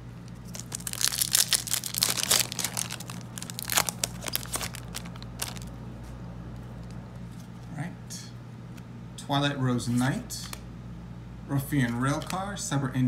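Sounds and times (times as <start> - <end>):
foil wrapper crinkling and tearing: 0.3 - 5.7.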